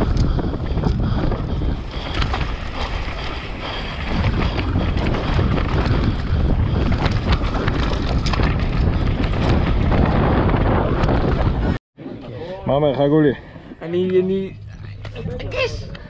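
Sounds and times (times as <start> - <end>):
bike rattling over ground: 0.0 - 11.8
wind buffeting microphone: 0.0 - 11.8
low rumble: 13.3 - 16.0.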